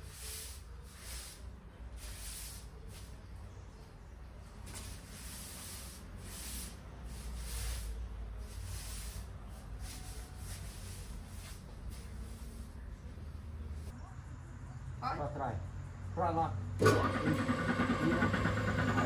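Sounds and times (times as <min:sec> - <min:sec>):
broom sweeping a hard floor: 0:00.0 - 0:03.4, 0:04.6 - 0:13.1.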